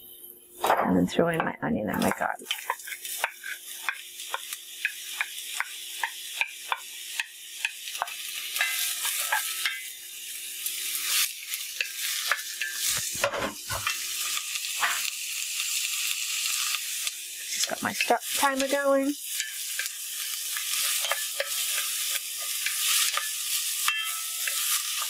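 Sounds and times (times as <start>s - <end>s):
onion sizzling in oil: 0.0s - 25.0s.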